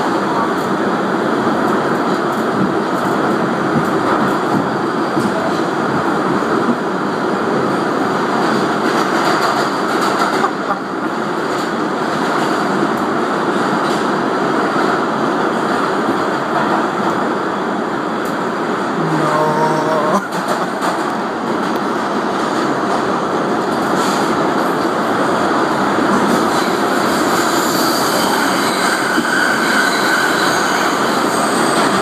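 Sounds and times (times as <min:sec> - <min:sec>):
subway train rumble and rattle: 0:00.0 - 0:32.0.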